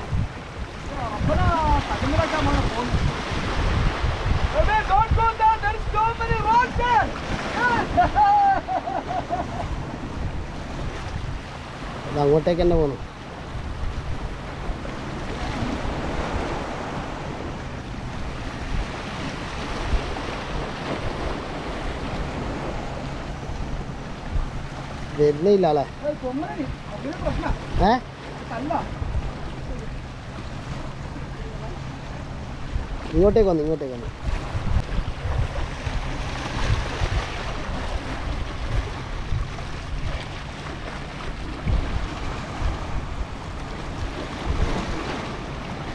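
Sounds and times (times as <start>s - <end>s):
waves washing against rocks: 0.0s - 13.0s, 30.6s - 45.9s
wind rumbling on microphone: 0.0s - 45.9s.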